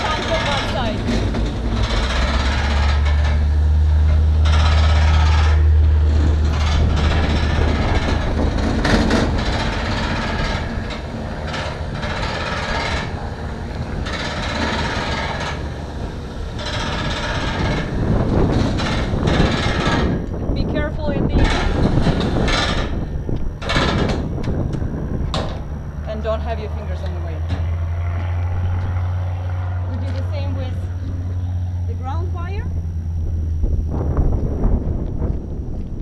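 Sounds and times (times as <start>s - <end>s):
hose and reel rattling and knocking: 0.0s - 25.7s
hose reel motor hum: 0.0s - 36.0s.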